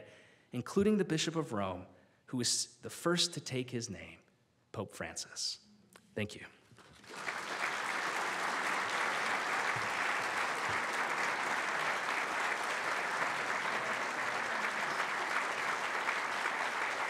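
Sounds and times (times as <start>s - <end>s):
audience applauding: 6.9s - 17.0s.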